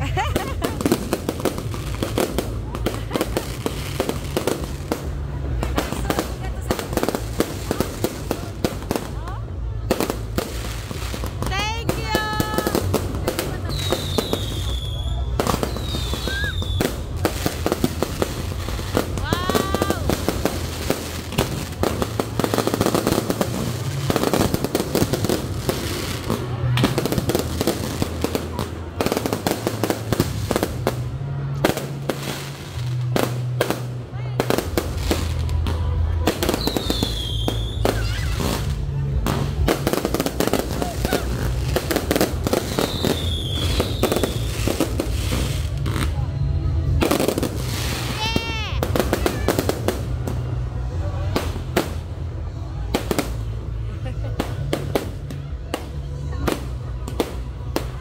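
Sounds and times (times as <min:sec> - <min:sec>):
firework crackling: 0:00.0 - 0:58.0
firework whistle: 0:13.7 - 0:17.3, 0:36.5 - 0:38.7, 0:42.6 - 0:46.2.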